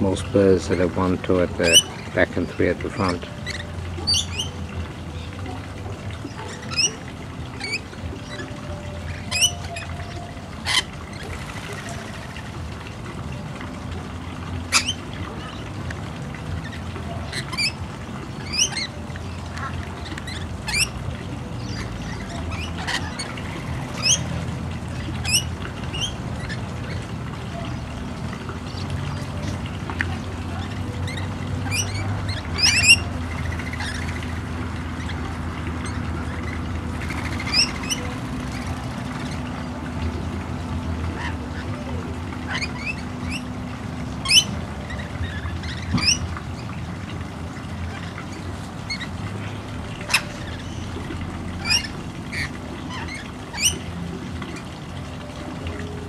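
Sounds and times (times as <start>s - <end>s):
lorikeets screeching: 0.0s - 12.1s, 14.6s - 15.7s, 16.5s - 28.0s, 30.5s - 39.8s, 41.0s - 43.5s, 44.2s - 46.7s, 47.8s - 54.6s
low steady rumble: 0.0s - 56.0s.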